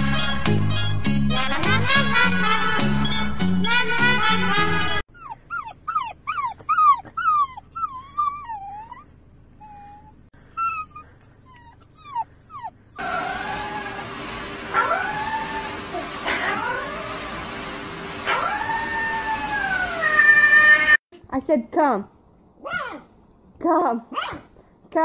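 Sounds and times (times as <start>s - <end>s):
upbeat music: 0.0s - 5.0s
puppy whining and whimpering: 5.0s - 14.1s, 14.8s - 17.3s, 18.3s - 21.0s
puppy howling: 5.1s - 17.5s, 18.2s - 21.0s.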